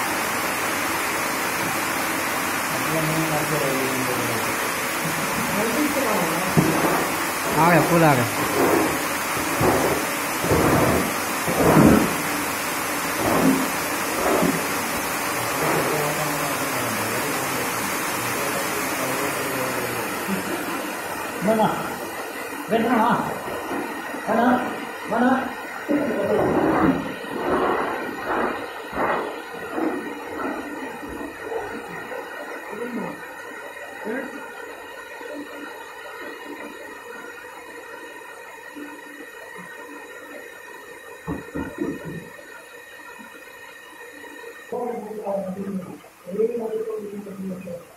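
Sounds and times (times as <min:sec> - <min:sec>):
water rushing through drum: 0:00.0 - 0:34.0
low machine hum: 0:00.0 - 0:47.9.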